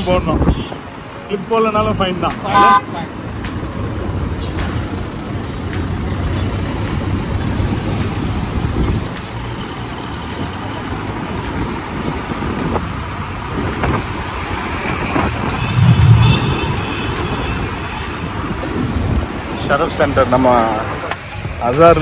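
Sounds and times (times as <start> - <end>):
louder low rumble: 15.6 - 17.4.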